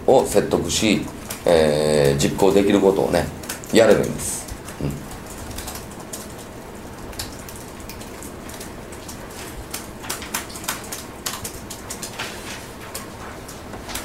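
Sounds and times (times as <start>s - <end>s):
room hiss: 0.0s - 14.0s
laptop keys clicking: 7.1s - 13.1s.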